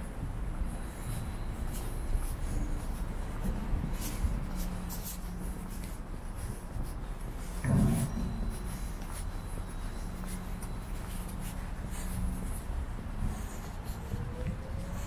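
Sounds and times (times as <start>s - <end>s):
footsteps on paved path: 0.0s - 15.0s
dull low thump: 7.5s - 11.2s.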